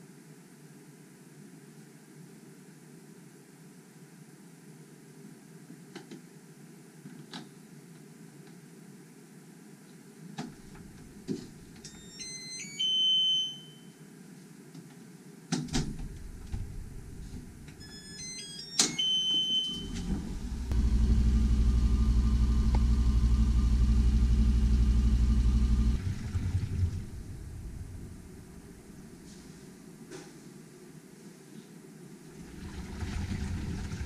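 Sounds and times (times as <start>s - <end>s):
washing machine humming: 10.6s - 13.1s, 15.8s - 29.4s, 32.3s - 34.0s
control panel beep melodies: 11.9s - 13.9s, 17.8s - 20.6s.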